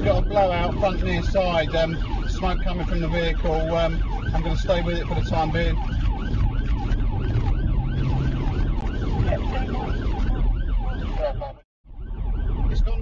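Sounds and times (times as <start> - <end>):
car engine and road noise: 0.0 - 13.0
police siren yelp: 0.0 - 13.0.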